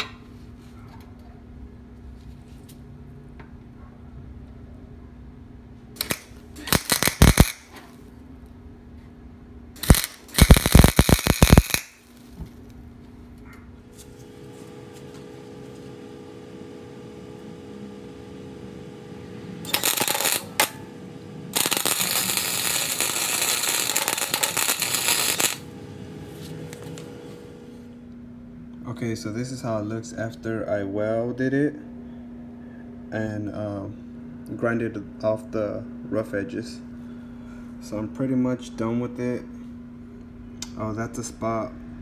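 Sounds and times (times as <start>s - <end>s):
welding arc crackling: 6.0s - 7.8s, 9.8s - 12.4s, 13.9s - 27.9s.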